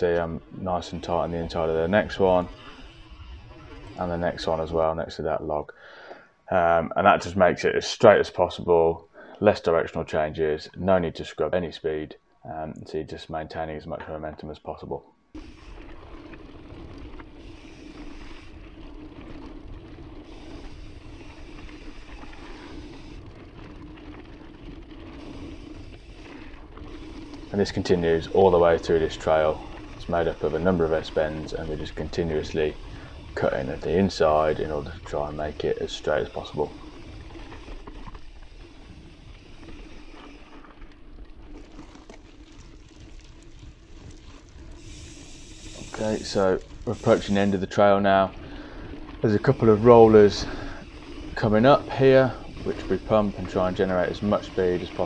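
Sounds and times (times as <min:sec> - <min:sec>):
bike mechanical rattles: 0:00.0 - 0:05.1, 0:15.3 - 0:55.0
bike tyres rolling over gravel: 0:00.0 - 0:12.0, 0:13.2 - 0:55.0.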